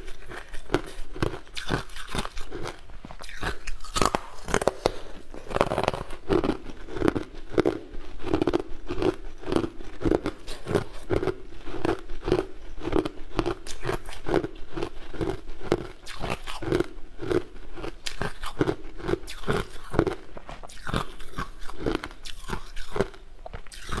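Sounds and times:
chewing and crunching ice: 0.0s - 24.0s.

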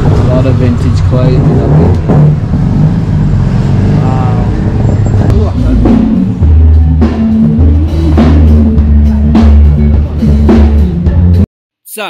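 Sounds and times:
loud music with drum beat and bass: 3.8s - 12.0s.

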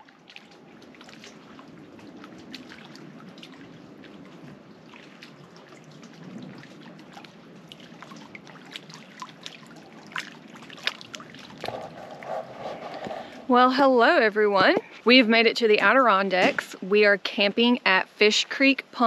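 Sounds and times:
small waves lapping at shore: 0.0s - 11.6s.

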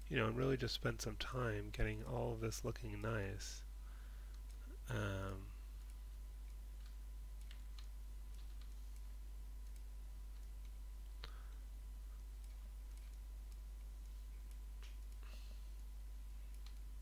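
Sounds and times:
low electrical hum: 0.0s - 17.0s
computer mouse clicks: 5.8s - 11.6s, 12.4s - 16.9s.

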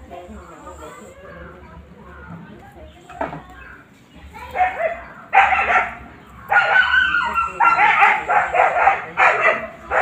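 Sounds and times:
dog barking and yelping: 4.6s - 10.0s.

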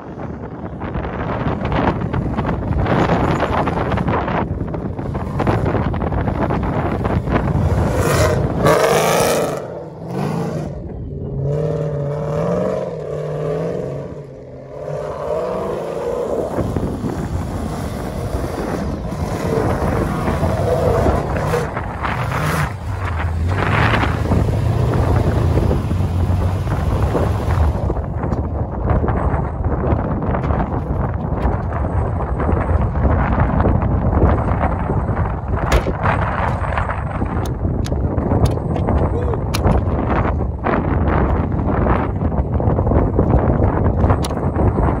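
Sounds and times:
wind buffeting microphone: 0.0s - 45.0s
race engine revving: 7.0s - 28.0s.

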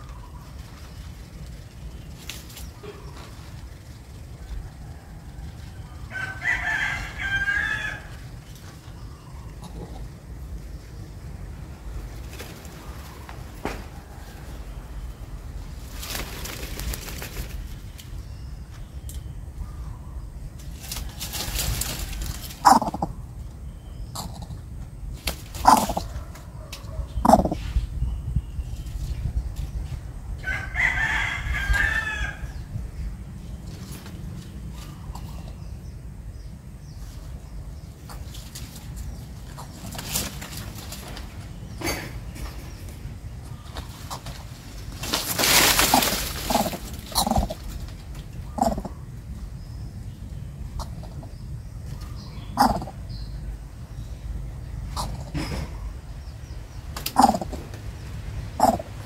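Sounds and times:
loud rustling in undergrowth: 0.0s - 4.7s, 11.6s - 18.8s, 20.6s - 23.2s, 36.4s - 49.8s
loud animal calls: 22.4s - 23.3s, 25.6s - 27.6s, 45.3s - 47.8s, 48.4s - 49.2s, 52.2s - 53.1s, 54.9s - 56.0s, 57.1s - 57.7s, 58.5s - 59.0s
rustling hiss: 32.5s - 50.2s.

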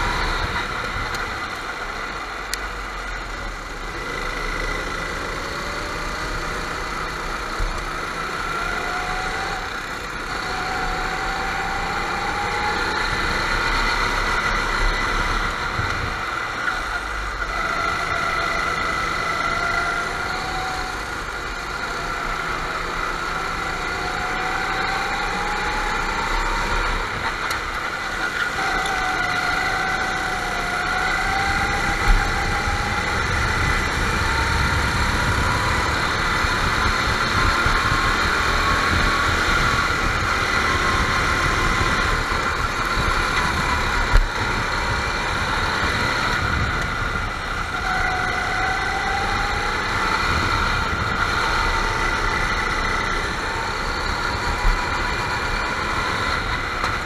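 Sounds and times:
go-kart engines whining: 0.0s - 57.0s.

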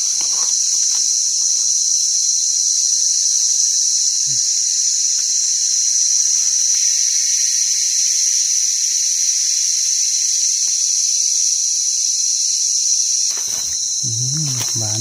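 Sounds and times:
rustling of dry leaves: 0.0s - 1.6s, 13.3s - 15.0s
insects calling: 0.0s - 15.0s.

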